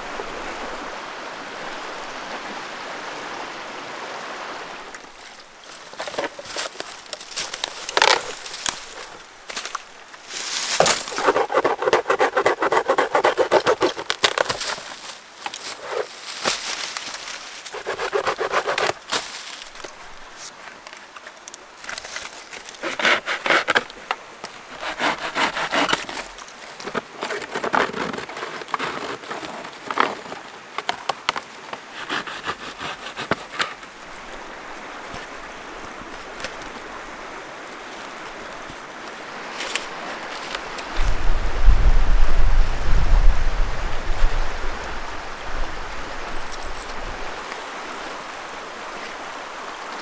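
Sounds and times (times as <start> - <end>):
river rushing: 0.0 - 50.0
log cracking and splintering: 5.1 - 33.9
knife scraping bark: 10.6 - 16.2, 17.6 - 19.3, 22.6 - 23.9, 24.7 - 30.4, 31.8 - 33.8.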